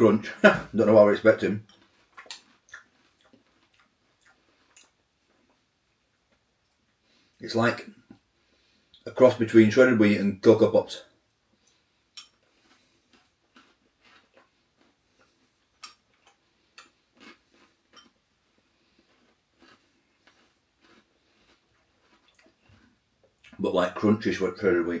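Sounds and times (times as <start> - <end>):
crunching cereal: 12.4 - 23.0.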